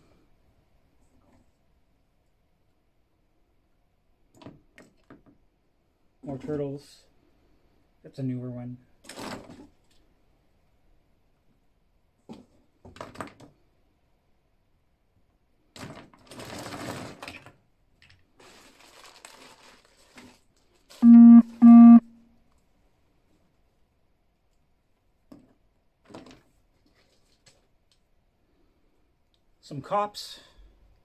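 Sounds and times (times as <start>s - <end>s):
plastic figures clattering: 25.3s - 27.7s.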